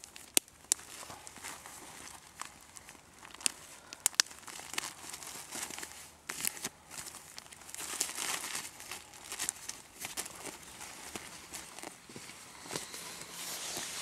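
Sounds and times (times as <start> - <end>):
feathers rustling on crinkly foil: 0.0 - 14.0.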